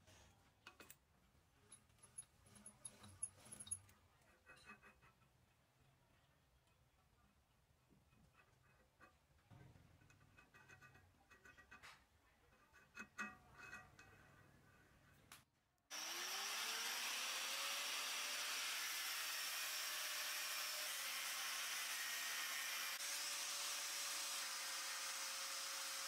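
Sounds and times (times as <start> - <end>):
angle grinder cutting steel: 15.9 - 26.0.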